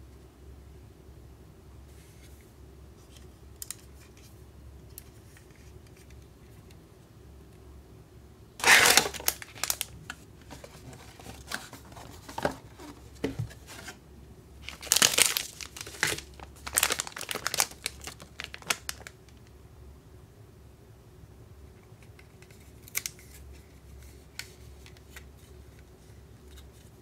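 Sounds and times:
candy wrappers crackling: 0:08.6 - 0:11.6, 0:14.6 - 0:19.4
plastic bag crinkling: 0:08.6 - 0:12.9, 0:14.6 - 0:19.2.

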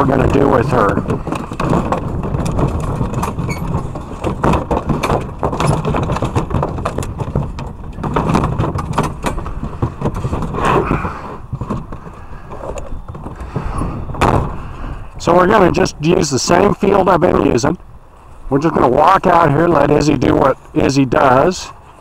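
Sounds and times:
crate wire door rattling: 0:00.0 - 0:14.7
steady low rumble: 0:00.0 - 0:21.4.

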